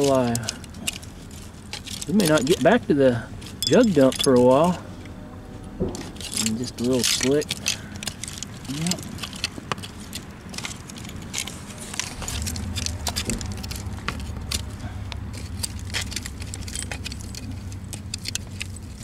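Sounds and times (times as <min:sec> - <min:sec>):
low steady rumble: 0:00.0 - 0:19.0
glass bottles clinking: 0:03.5 - 0:04.8.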